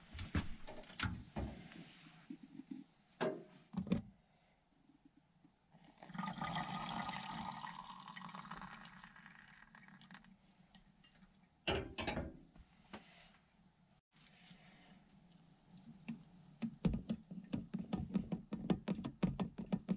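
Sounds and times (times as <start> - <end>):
hot water pouring: 6.0 - 11.3.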